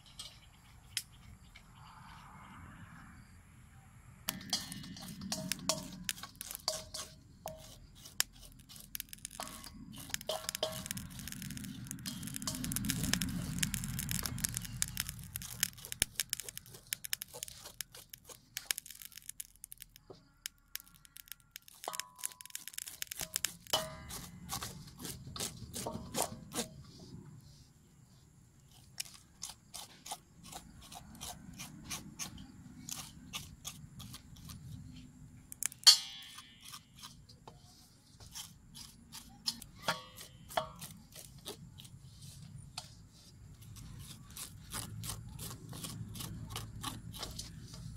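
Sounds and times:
metal blade scraping scales: 4.3s - 19.8s, 20.7s - 26.9s, 35.5s - 37.3s, 38.3s - 43.0s
sharp clack: 35.6s - 36.8s.

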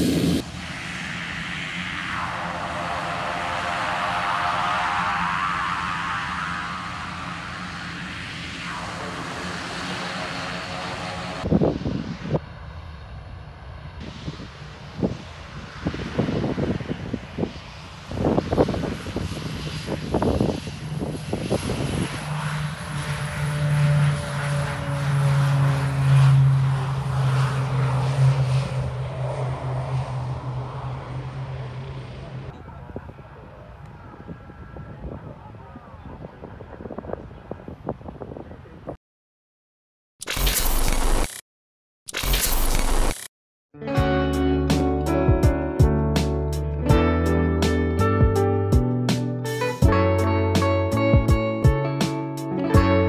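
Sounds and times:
wind gusting on microphone: 0.0s - 31.6s, 32.4s - 39.0s
distant aircraft engine: 0.0s - 39.0s, 44.0s - 53.0s
turboprop engines with turbine whine: 0.0s - 39.0s, 40.3s - 41.4s, 42.2s - 43.3s.

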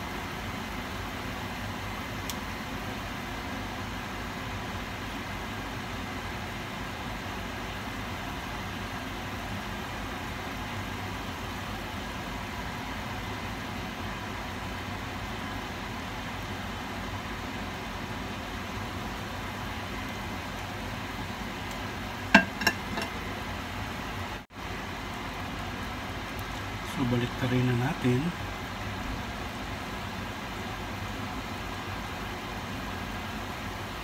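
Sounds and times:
dough deep-frying in oil: 0.0s - 34.0s
tongs clacking against pot: 22.3s - 23.2s.

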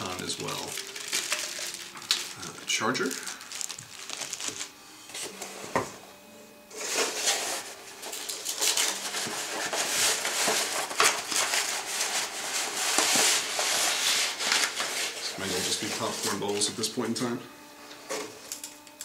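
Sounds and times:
packing peanuts rustling out of box: 0.0s - 4.7s, 6.8s - 16.8s.

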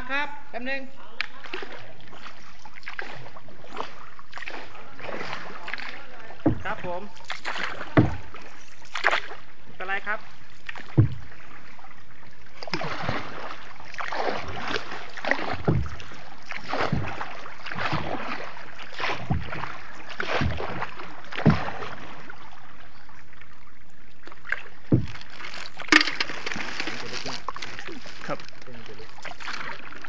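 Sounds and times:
paddle swishing water: 1.0s - 30.0s
sharp knocks: 7.9s - 8.3s, 10.9s - 11.3s, 15.5s - 16.2s, 24.9s - 26.7s.

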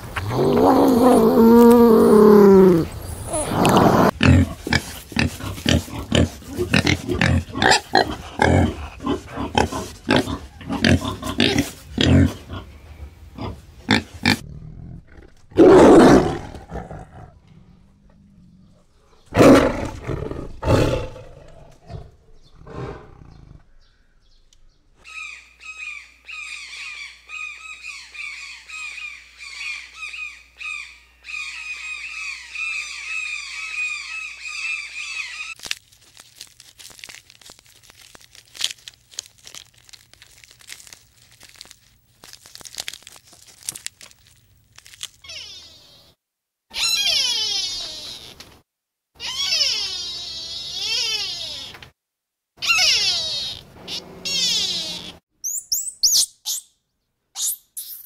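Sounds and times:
bird calling: 23.3s - 35.6s, 52.6s - 56.8s
peccary harsh calls: 45.2s - 48.4s, 49.2s - 51.8s, 52.6s - 56.7s.

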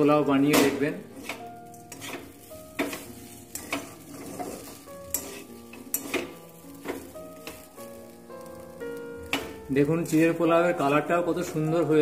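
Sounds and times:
light sizzle: 0.0s - 12.0s
soft background music: 0.0s - 12.0s
metal spatula scraping a pan: 1.0s - 7.7s.

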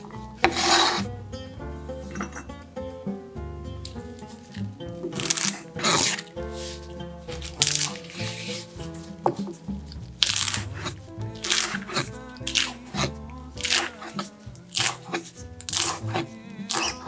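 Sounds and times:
background music: 0.0s - 17.0s
knife chopping on cutting board: 0.4s - 1.1s, 5.1s - 6.7s, 7.3s - 17.0s.

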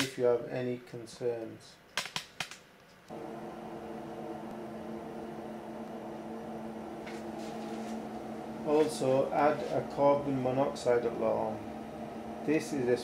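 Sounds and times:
gas boiler humming: 3.1s - 13.0s.

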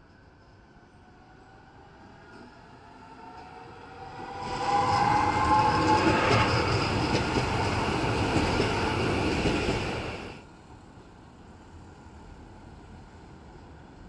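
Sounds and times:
tram wheels clattering on rails: 4.4s - 10.4s.

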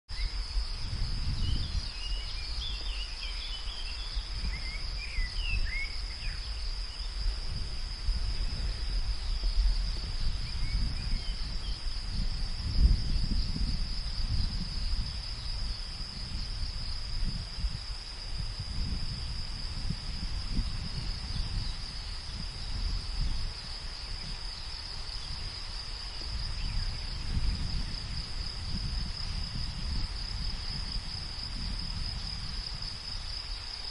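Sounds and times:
crickets chirping: 0.1s - 33.9s
low wind rumble: 0.1s - 33.9s.

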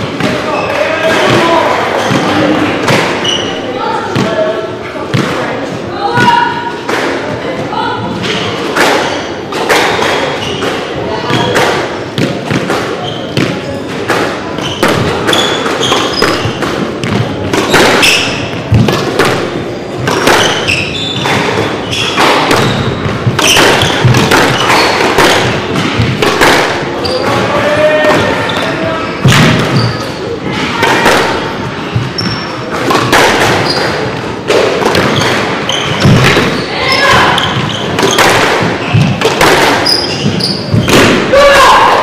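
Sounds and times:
squash ball thumps: 0.0s - 3.4s, 4.1s - 28.6s, 29.2s - 41.9s
shoes squeaking on wooden floor: 0.0s - 4.3s, 10.0s - 13.9s, 14.5s - 19.1s, 19.9s - 26.2s, 26.9s - 30.6s, 31.6s - 41.0s.

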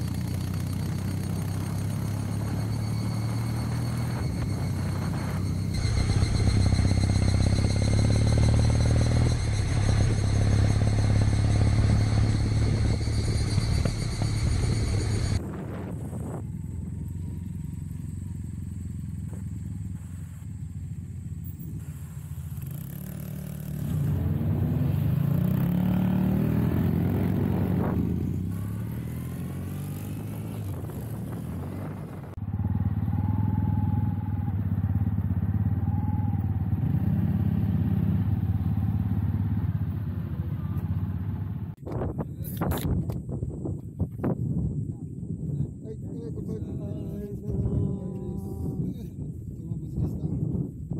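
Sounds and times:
motorcycle engine running: 0.0s - 41.8s
motorcycles passing by: 0.0s - 41.8s.

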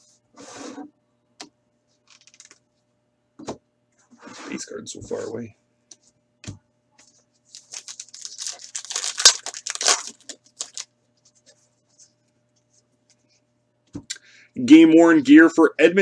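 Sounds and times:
wrapper tearing and crinkling: 7.5s - 10.9s.

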